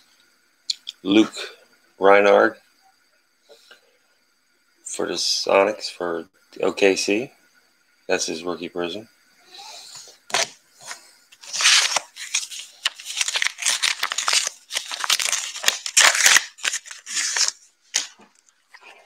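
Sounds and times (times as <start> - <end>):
plastic rustling and scraping: 10.3 - 19.0.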